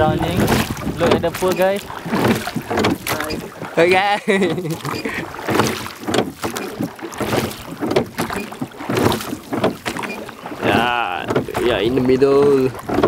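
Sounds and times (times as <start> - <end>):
wind buffeting microphone: 0.0 - 6.2, 10.5 - 13.0
water splashing around boat: 0.0 - 13.0.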